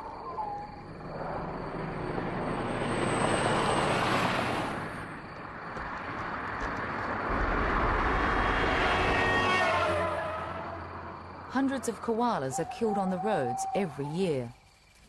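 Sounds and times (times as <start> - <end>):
cars driving past: 0.8 - 12.6.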